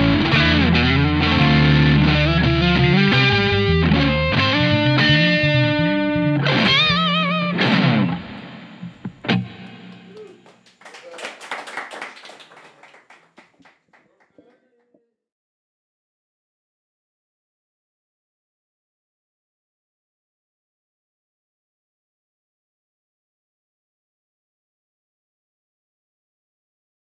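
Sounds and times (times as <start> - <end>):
electric bass: 0.0 - 10.2
electric guitar with effects: 0.0 - 10.4.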